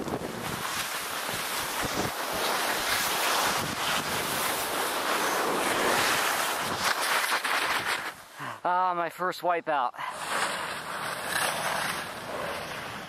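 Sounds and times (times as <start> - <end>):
wind rushing on microphone: 0.0 - 7.0
skier sliding on snow: 0.0 - 8.6, 10.0 - 13.0.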